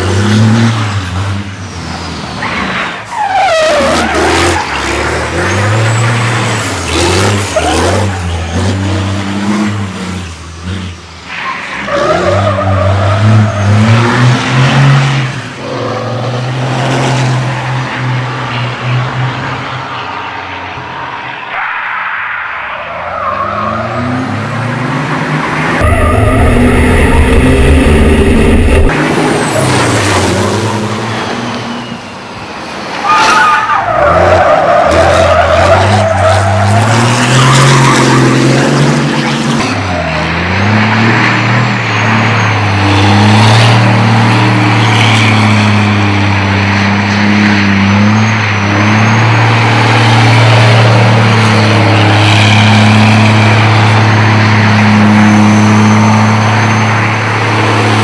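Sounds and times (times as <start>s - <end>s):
diesel truck engine revving: 0.0s - 11.2s, 23.3s - 31.8s, 33.8s - 58.0s.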